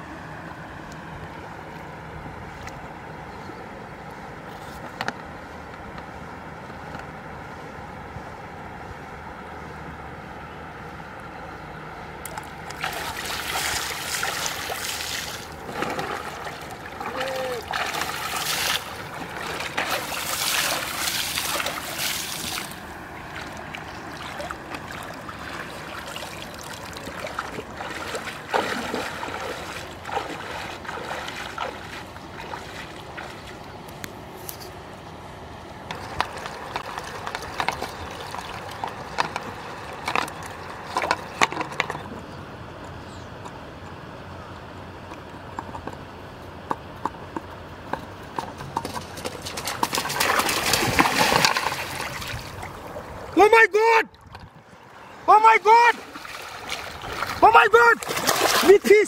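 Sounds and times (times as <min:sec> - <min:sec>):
river water splashing: 0:11.9 - 0:42.1, 0:47.7 - 0:59.0.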